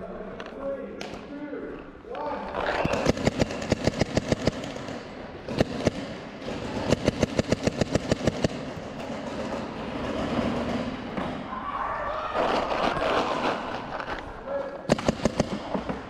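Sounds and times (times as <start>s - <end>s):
paintball markers firing: 2.7s - 11.3s, 14.9s - 16.0s.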